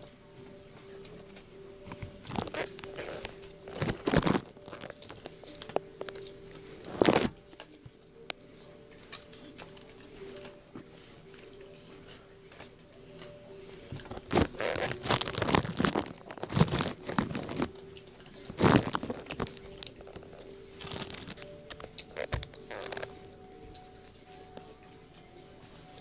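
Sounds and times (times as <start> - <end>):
packaging rustling and crinkling: 1.8 - 7.8, 13.8 - 24.2.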